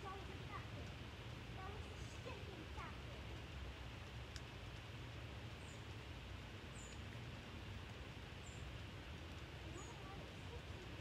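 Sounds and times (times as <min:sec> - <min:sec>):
soft hiss: 0:00.0 - 0:11.0
small bird chirping: 0:05.6 - 0:05.9, 0:06.7 - 0:07.1, 0:08.4 - 0:08.7.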